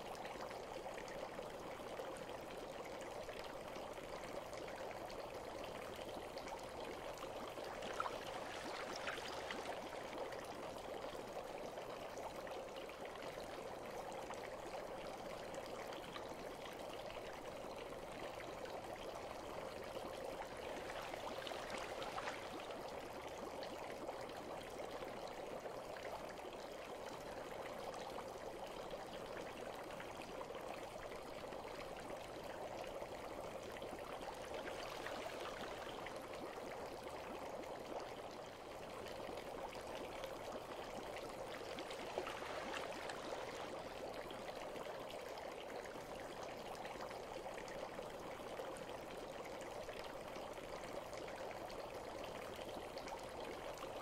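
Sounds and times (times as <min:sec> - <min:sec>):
bath water running: 0:41.8 - 0:43.9.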